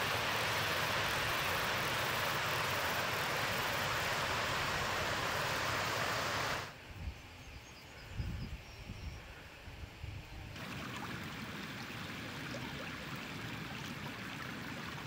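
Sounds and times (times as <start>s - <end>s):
mountain stream rushing: 0.0s - 6.7s, 10.6s - 15.0s.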